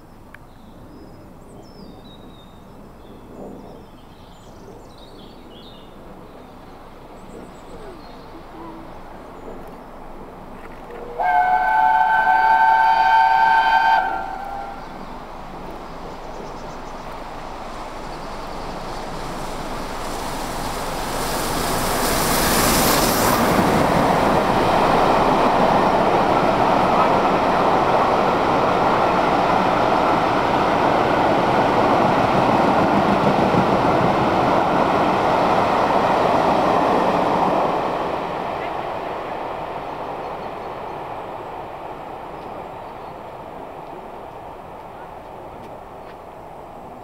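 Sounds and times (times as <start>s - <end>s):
train running on rails: 0.0s - 47.0s
steam locomotive passing: 2.0s - 47.0s
steam locomotive whistle: 11.0s - 14.8s.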